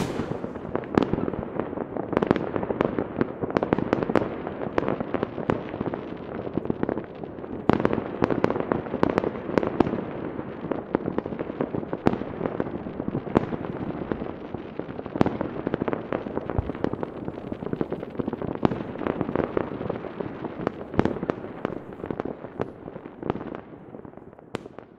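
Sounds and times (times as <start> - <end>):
sharp firework bangs: 0.0 - 1.4
fireworks rumble and crackles: 0.0 - 24.9.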